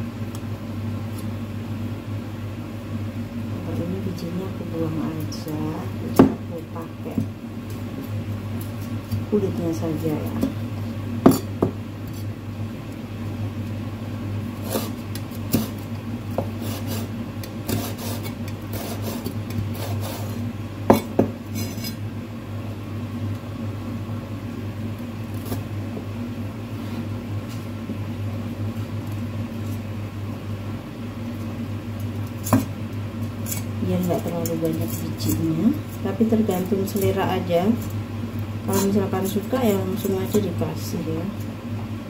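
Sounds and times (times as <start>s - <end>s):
steady low hum: 0.0s - 42.0s
seeds scraped with knife: 14.6s - 15.8s, 16.6s - 20.4s.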